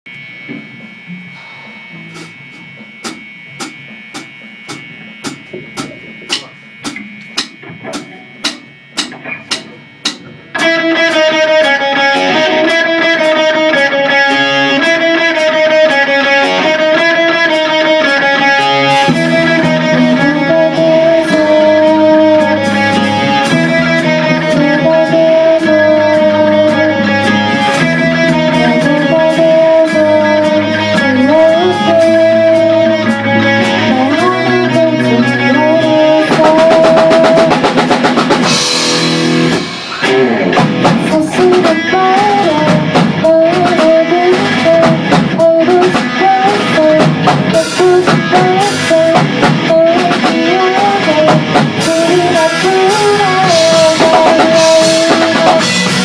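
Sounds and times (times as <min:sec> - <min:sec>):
bass guitar: 0:00.0 - 0:56.0
distorted electric guitar: 0:00.0 - 0:56.0
amplifier hum: 0:00.1 - 0:56.0
drum kit: 0:00.1 - 0:56.0
sharp taps: 0:03.0 - 0:10.3.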